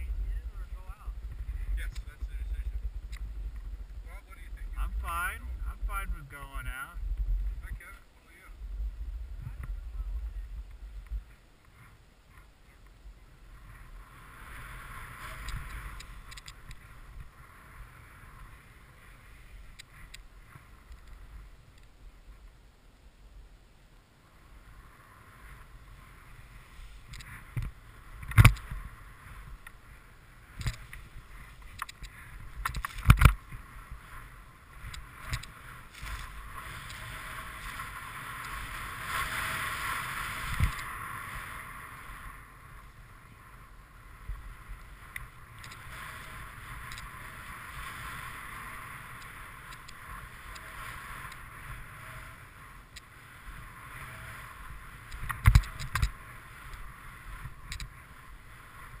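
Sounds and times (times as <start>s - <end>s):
snowboard hissing through snow: 33.6s - 42.4s.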